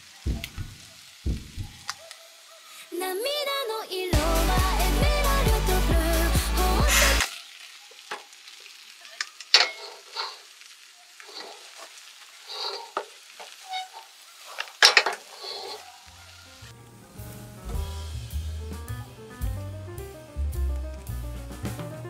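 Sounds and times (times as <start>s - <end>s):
music: 4.1s - 7.2s, 16.7s - 22.0s
soft scraping sounds: 9.6s - 10.5s, 11.3s - 16.0s.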